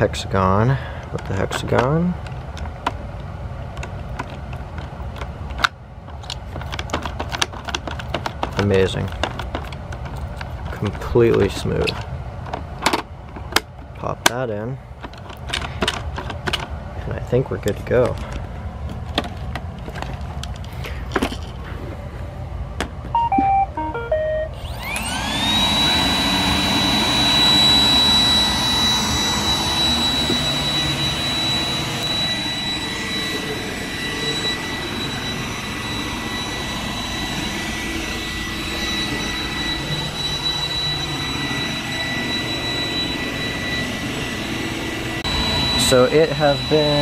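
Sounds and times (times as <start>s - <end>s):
robot vacuum start-up tune: 23.1s - 47.0s
vacuum motor whine: 23.1s - 47.0s.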